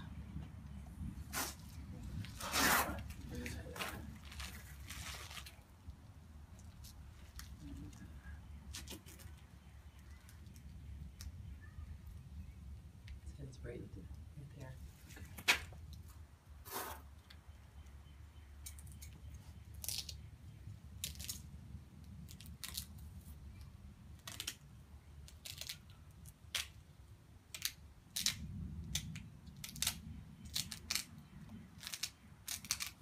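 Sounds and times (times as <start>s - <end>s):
low steady rumble: 0.0s - 16.6s
duct tape peeling and crinkling: 1.2s - 8.0s, 8.7s - 11.3s, 19.7s - 20.3s, 20.9s - 23.4s, 24.1s - 33.0s.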